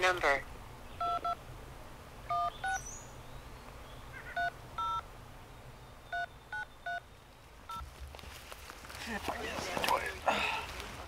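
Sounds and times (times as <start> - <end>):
phone keypad beeps: 1.0 - 1.4, 2.3 - 2.8, 4.4 - 5.0, 6.1 - 7.0.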